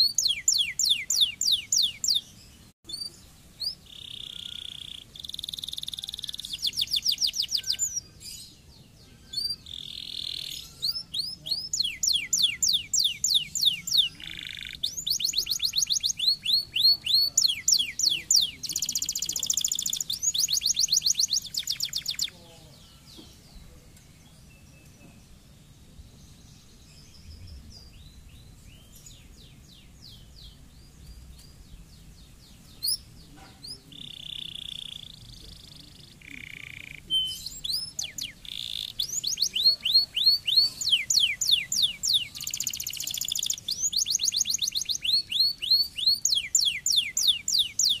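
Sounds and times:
canary singing: 0:00.0 - 0:25.1, 0:26.9 - 0:48.0.

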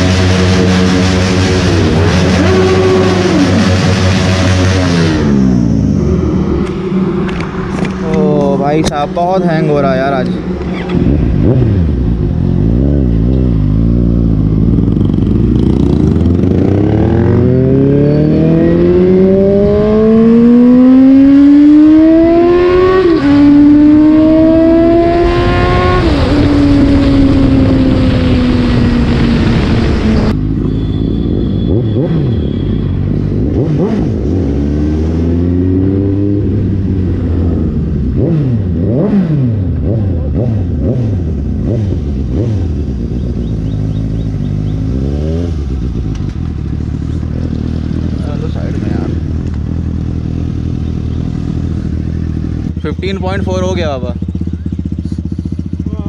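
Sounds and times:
motorcycle engine accelerating: 0:00.0 - 0:56.0
wind noise: 0:22.1 - 0:30.4.

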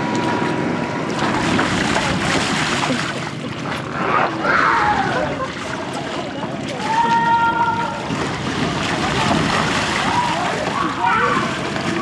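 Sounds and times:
water sloshing and splashing: 0:00.0 - 0:12.0
child crying out: 0:04.4 - 0:05.3, 0:06.9 - 0:08.0.

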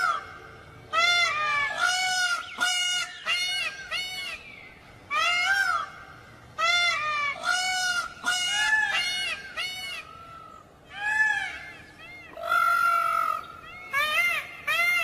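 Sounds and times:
peacock honking calls: 0:05.1 - 0:15.0.

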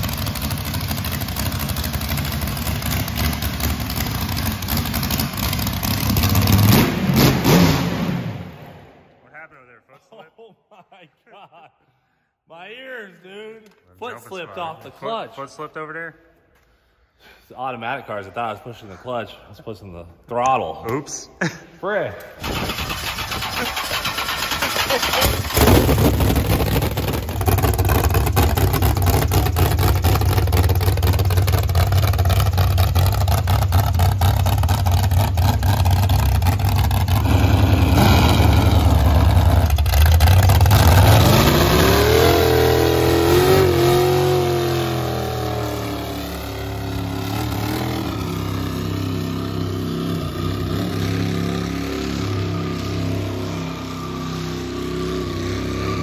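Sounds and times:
race car engine revving: 0:00.0 - 0:08.7, 0:23.8 - 0:56.0.

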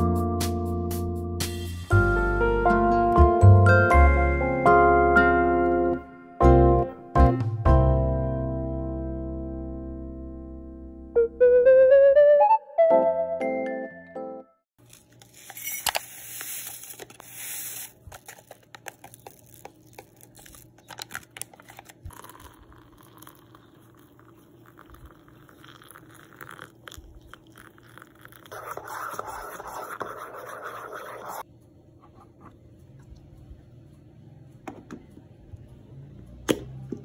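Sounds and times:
coffee powder pouring into mug: 0:15.0 - 0:20.6, 0:21.4 - 0:31.4
metal spoon stirring in mug: 0:22.1 - 0:31.4.

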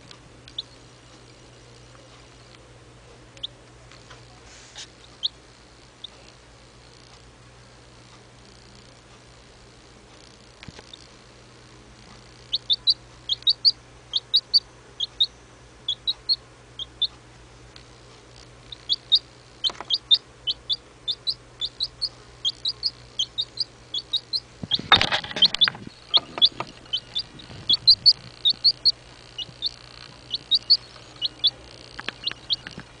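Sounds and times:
chick peeping: 0:00.4 - 0:02.3, 0:04.8 - 0:05.4, 0:12.2 - 0:17.2, 0:18.6 - 0:33.0.

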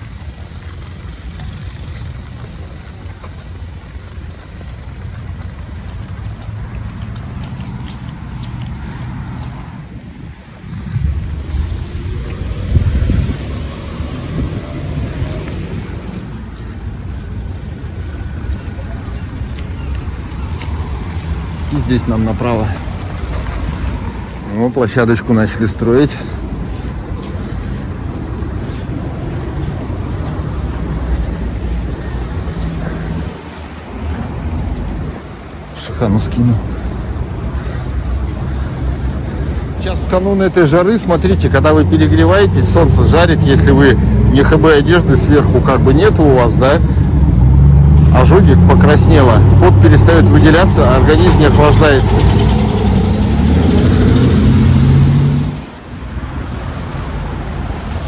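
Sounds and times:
wind buffeting microphone: 0:00.0 - 0:24.7, 0:25.7 - 0:35.8
outdoor noise: 0:00.0 - 0:58.0.

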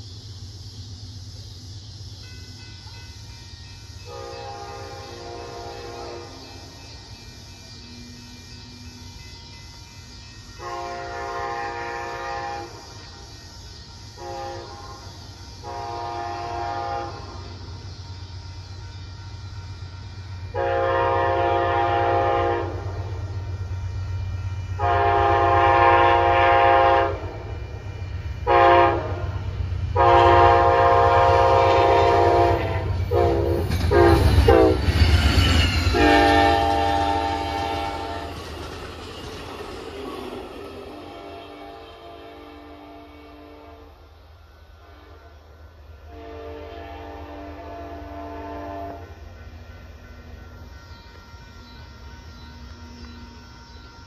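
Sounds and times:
train rumbling past: 0:00.0 - 0:54.0
locomotive air horn blasts: 0:04.1 - 0:06.6, 0:10.6 - 0:12.9, 0:14.2 - 0:17.6, 0:20.4 - 0:23.3, 0:24.7 - 0:27.8, 0:28.4 - 0:34.9, 0:35.9 - 0:38.4, 0:40.9 - 0:44.0, 0:44.8 - 0:49.2
train wheel clatter: 0:28.9 - 0:42.0.

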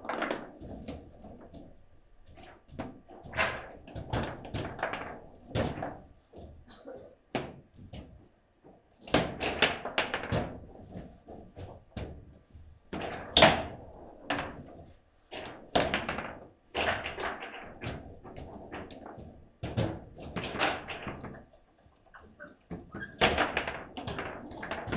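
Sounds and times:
table football ball knocks and clacks: 0:00.0 - 0:06.6, 0:07.3 - 0:24.9.

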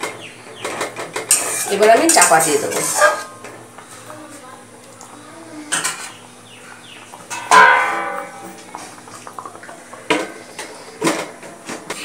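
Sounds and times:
metal cookware clanging: 0:00.0 - 0:03.5, 0:07.2 - 0:11.4.

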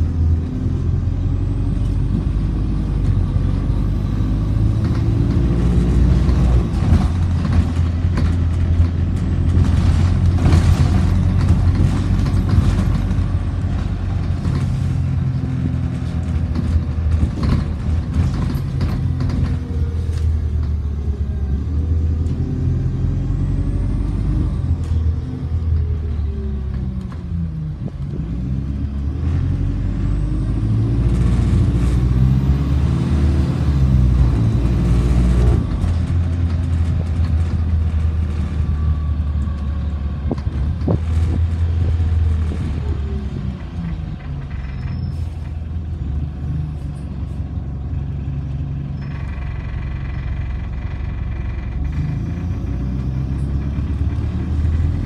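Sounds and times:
bus diesel engine droning: 0:00.0 - 0:55.0.

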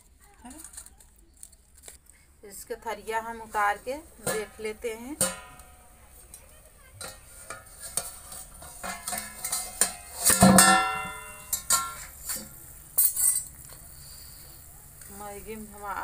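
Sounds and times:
metallic clinks and scrapes: 0:03.6 - 0:14.4
steel plate ringing clang: 0:04.2 - 0:06.1, 0:07.0 - 0:12.4.

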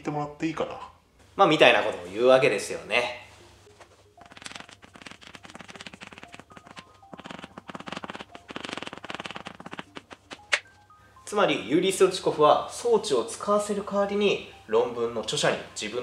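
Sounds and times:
chalk tapping and scratching: 0:04.2 - 0:10.6.

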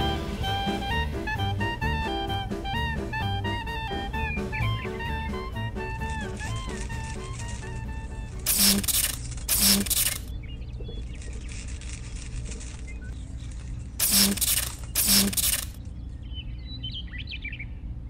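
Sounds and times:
low steady hum: 0:00.0 - 0:18.0
soldering iron sizzling: 0:08.5 - 0:10.2, 0:14.0 - 0:15.8.

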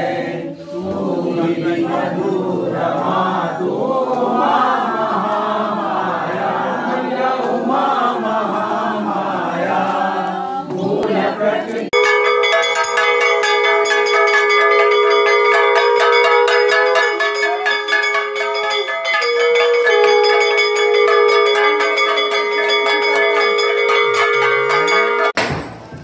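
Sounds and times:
bells rung rapidly: 0:12.0 - 0:25.4
long held tones: 0:12.0 - 0:25.4.

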